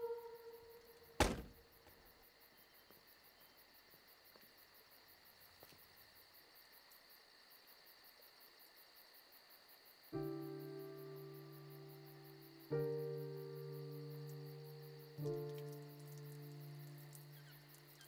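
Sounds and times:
crickets chirping: 0.0 - 18.0
car door shutting: 1.2 - 1.6.

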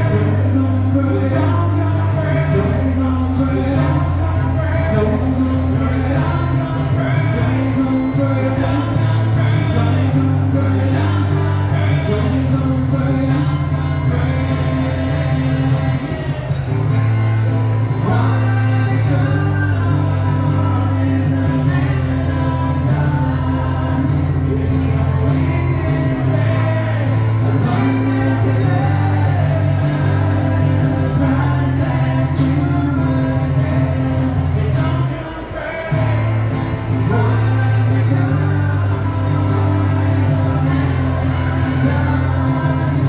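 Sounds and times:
acoustic guitar: 0.0 - 43.0
person singing: 0.0 - 43.0.

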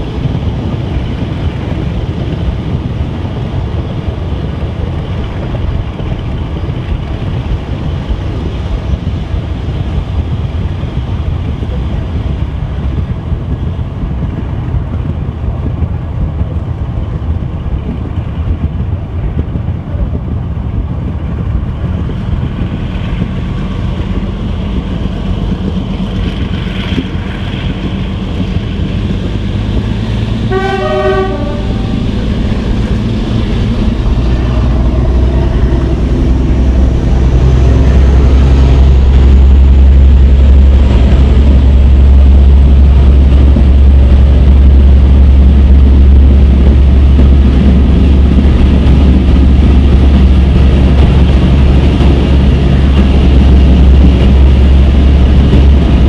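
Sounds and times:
diesel locomotive engines working: 0.0 - 56.0
train coaches running: 0.0 - 56.0
train drone in tunnel: 0.0 - 56.0
train horn blast: 30.4 - 32.2.

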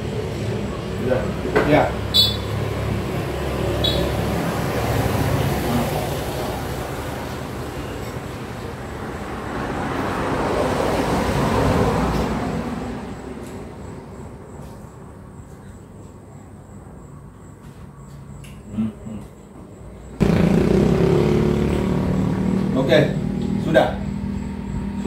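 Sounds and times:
motor vehicle passing by: 0.0 - 14.7, 20.1 - 25.0.

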